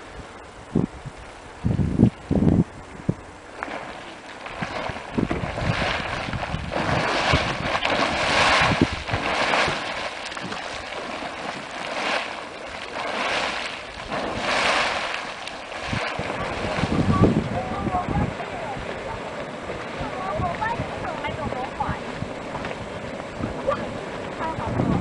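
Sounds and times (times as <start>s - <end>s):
hot spring water boiling and splashing: 3.5s - 25.0s.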